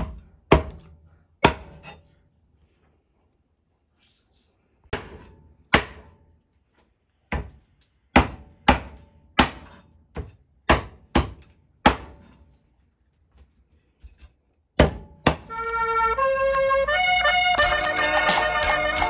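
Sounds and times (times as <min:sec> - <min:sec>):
knife chopping on wooden board: 0:00.0 - 0:02.0, 0:04.9 - 0:06.2, 0:07.3 - 0:12.4, 0:14.8 - 0:15.5.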